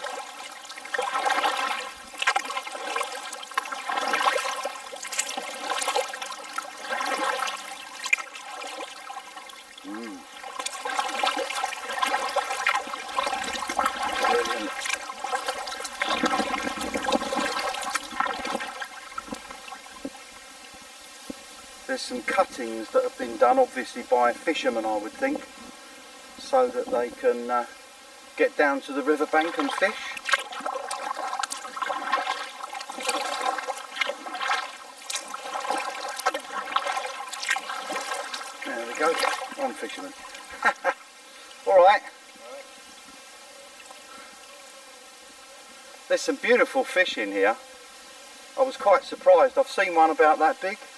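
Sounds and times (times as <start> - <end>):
water dripping off paddle: 0.0 - 20.2, 29.5 - 40.7
paddle blades splashing: 0.0 - 25.3, 28.6 - 43.1.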